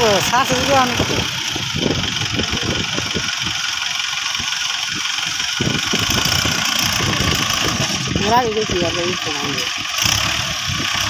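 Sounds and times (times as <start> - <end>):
diesel tractor engine idling: 0.0 - 11.0.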